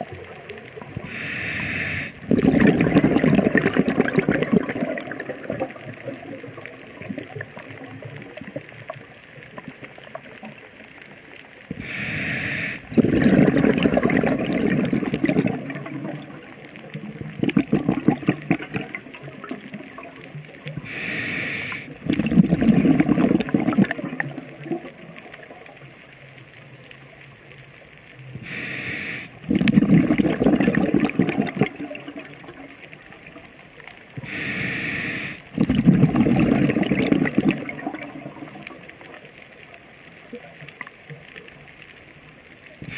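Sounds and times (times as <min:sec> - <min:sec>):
exhaled bubbles rumbling: 0:00.0 - 0:01.2, 0:02.2 - 0:12.0, 0:12.8 - 0:21.0, 0:21.7 - 0:28.5, 0:29.4 - 0:34.3, 0:35.5 - 0:42.9
faint crackle: 0:00.0 - 0:42.9
regulator inhale hiss: 0:01.0 - 0:02.3, 0:11.7 - 0:13.0, 0:20.8 - 0:22.0, 0:28.4 - 0:29.5, 0:34.2 - 0:35.6.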